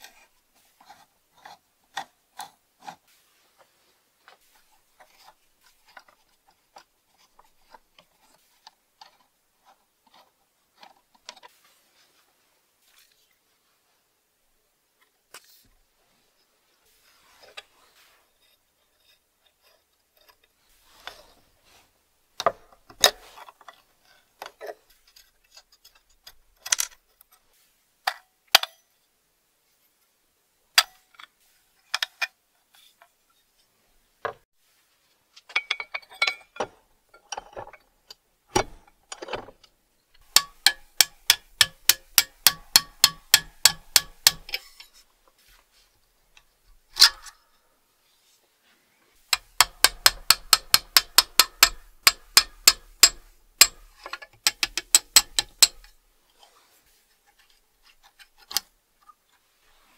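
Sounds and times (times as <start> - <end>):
small metal parts clicking: 40.1 - 44.9, 49.3 - 56.0.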